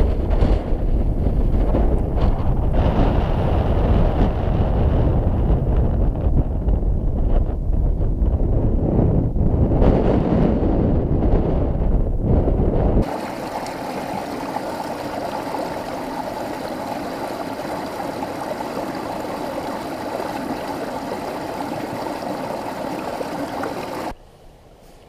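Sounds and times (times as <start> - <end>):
wind buffeting microphone: 0.0 - 24.2
stream splashing over rocks: 13.0 - 24.2.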